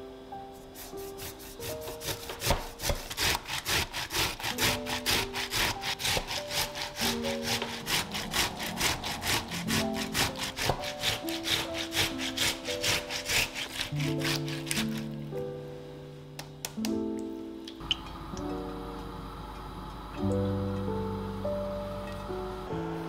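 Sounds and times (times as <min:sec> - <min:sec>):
tomato grating on metal grater: 0:00.7 - 0:15.2.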